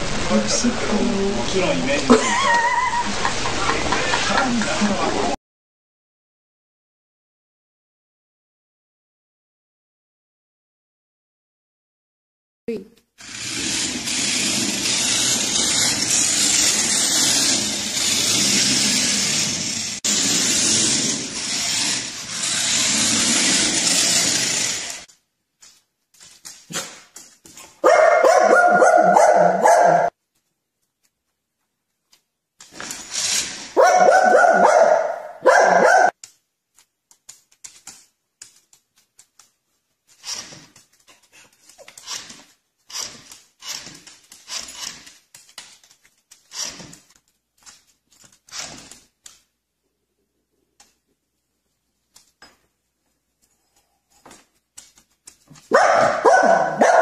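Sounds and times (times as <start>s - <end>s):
small dog barking: 27.8s - 30.1s, 33.8s - 36.1s, 55.7s - 57.0s.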